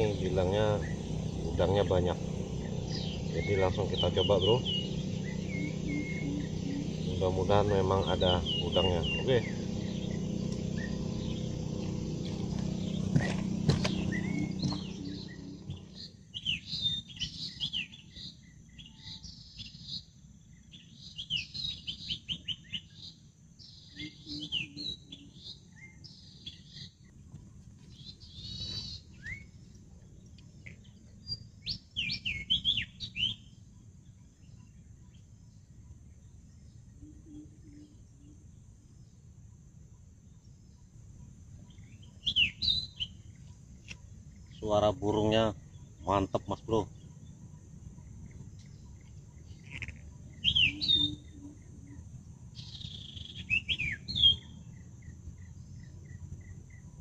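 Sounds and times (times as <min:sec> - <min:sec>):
faint low rumble: 0:00.0 - 0:16.2
bird chirping: 0:00.0 - 0:57.0.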